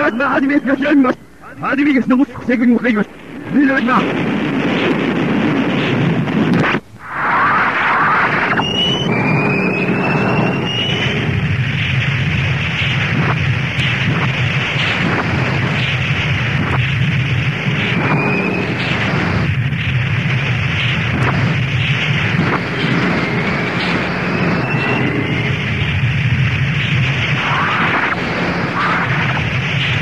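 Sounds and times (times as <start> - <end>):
jet engines and explosions rumble: 0.0 - 30.0
sharp cracks: 2.9 - 30.0
short rising whistles: 7.4 - 11.3.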